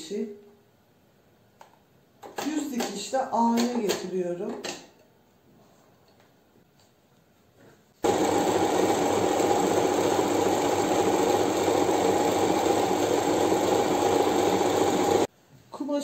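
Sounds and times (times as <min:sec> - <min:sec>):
sewing machine running: 0:08.0 - 0:15.3.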